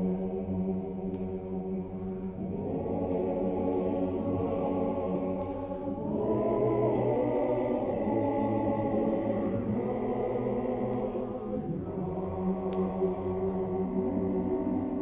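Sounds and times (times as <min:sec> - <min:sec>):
choir singing slow chant: 0:00.0 - 0:15.0.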